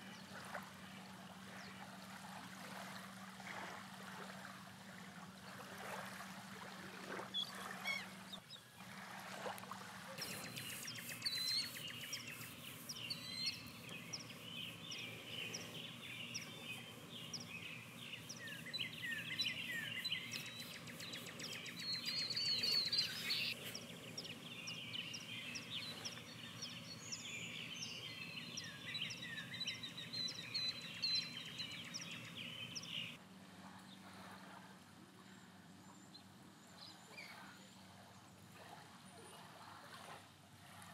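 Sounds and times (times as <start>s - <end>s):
birds chirping and calling: 10.2s - 33.2s.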